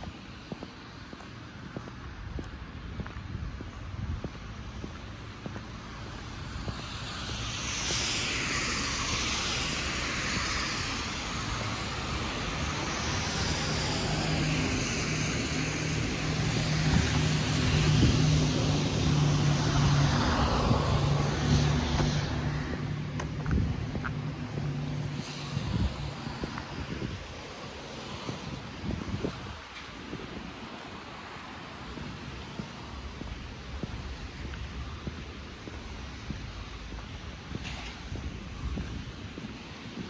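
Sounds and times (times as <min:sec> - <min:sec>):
vehicle engine passing: 0:04.7 - 0:28.8
sweeping hiss: 0:06.2 - 0:17.5.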